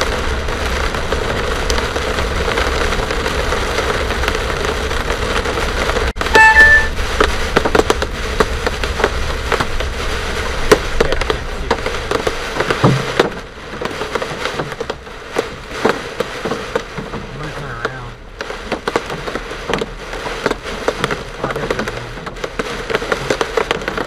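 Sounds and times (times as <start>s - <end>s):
hailstones striking car: 0.0s - 24.0s
moving car rumble: 0.0s - 24.0s
short beep: 6.3s - 7.0s.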